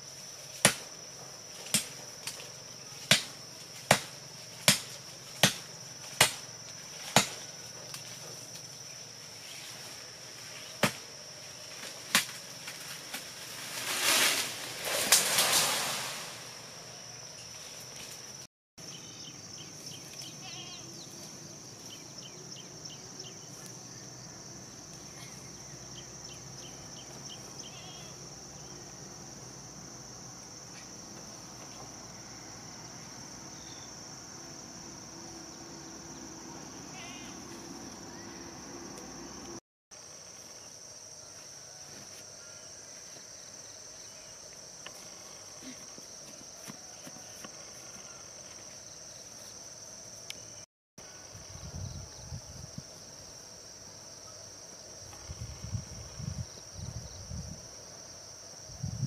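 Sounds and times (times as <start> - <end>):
insects droning: 0.0 - 59.0
blade chopping wood: 0.6 - 0.9, 3.1 - 6.4, 7.1 - 7.4.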